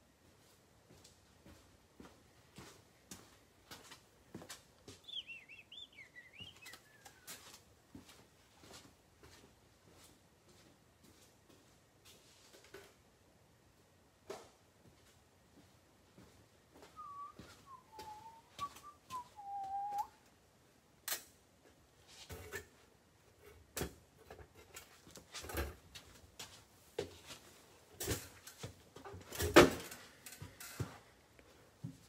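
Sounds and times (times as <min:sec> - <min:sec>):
descending whistled notes: 0:05.0 - 0:07.5, 0:16.9 - 0:20.2.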